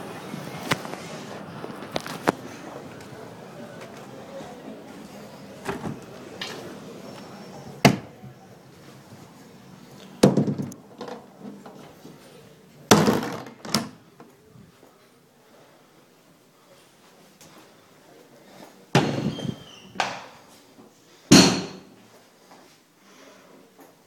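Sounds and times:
door thudding shut: 10.2 - 10.8.

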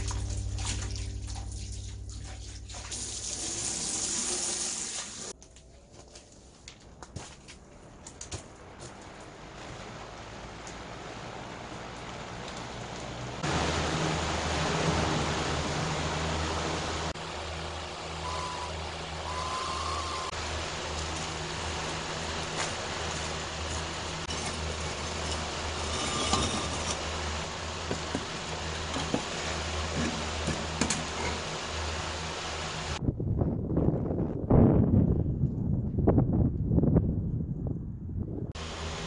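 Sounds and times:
low rumbling hum: 0.0 - 4.2, 7.7 - 39.0
concrete paver knocks: 27.8 - 28.3.

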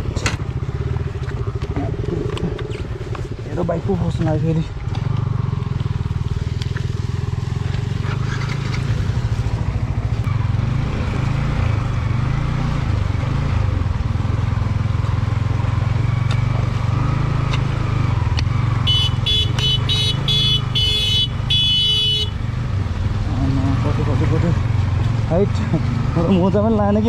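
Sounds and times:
motorcycle engine running: 0.0 - 27.0
vehicle horn honks: 18.8 - 22.4.

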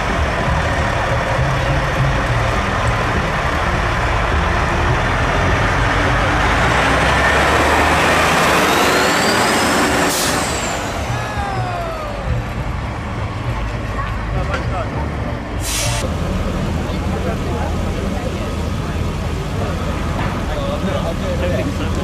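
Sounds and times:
rising whine: 0.0 - 14.0
diesel truck engine rumbling: 0.0 - 22.0.

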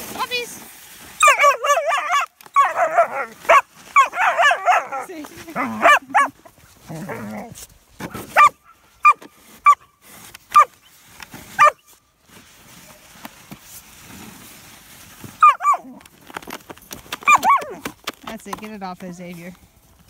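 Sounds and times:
puppy barking: 1.2 - 6.4, 8.3 - 9.8, 11.6 - 11.8, 15.4 - 15.9, 17.3 - 17.8.

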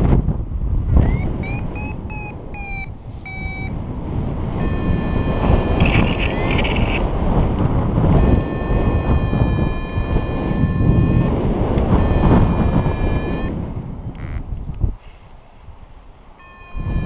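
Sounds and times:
wind buffeting microphone: 0.0 - 15.0, 15.6 - 17.0
variometer beeps: 1.0 - 3.8, 4.6 - 7.1, 8.1 - 13.6, 14.2 - 14.4, 16.4 - 17.0
variometer steady tone: 1.0 - 3.8, 4.6 - 7.1, 8.0 - 14.5, 16.4 - 17.0.

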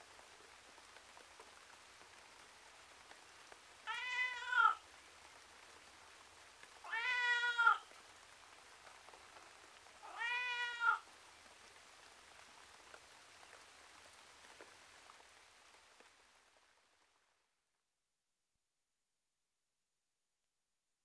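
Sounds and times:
cat meowing: 3.9 - 4.8, 6.8 - 7.9, 10.0 - 11.0.

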